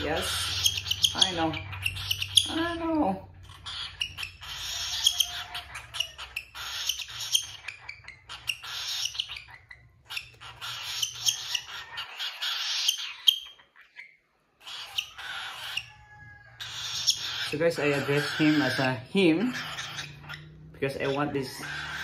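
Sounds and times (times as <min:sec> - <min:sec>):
cockatiel raspy feeding calls: 0:00.0 - 0:22.0.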